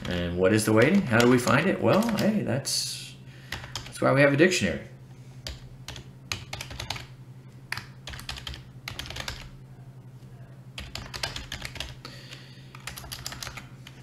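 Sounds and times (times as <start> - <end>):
low steady hum: 0.0 - 14.0
typing on computer keyboard: 0.9 - 2.3, 3.5 - 3.9, 5.4 - 7.1, 7.7 - 9.5, 10.8 - 14.0.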